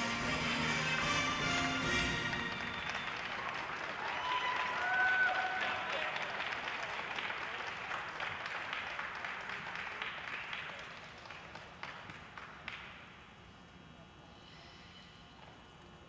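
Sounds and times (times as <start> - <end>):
audience applause: 1.9 - 12.8.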